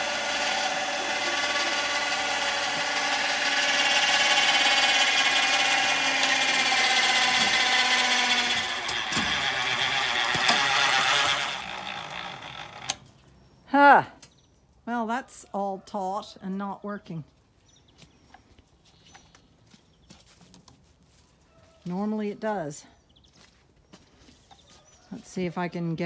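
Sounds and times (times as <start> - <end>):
winch motor whining: 0.0 - 13.2.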